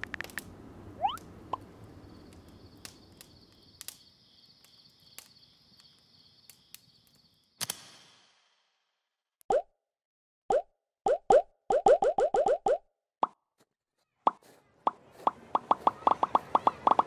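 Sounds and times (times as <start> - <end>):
crickets trilling: 1.0 - 7.6.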